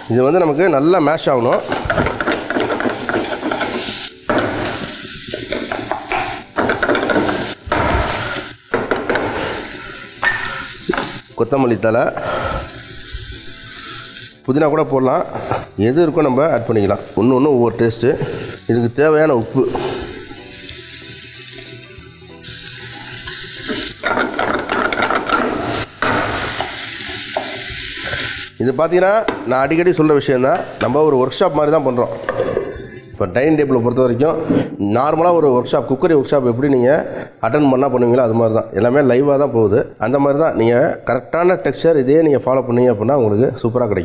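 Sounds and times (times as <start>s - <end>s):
food sizzling in a pan: 0.0s - 33.0s
spatula scraping frying pan: 1.6s - 5.7s.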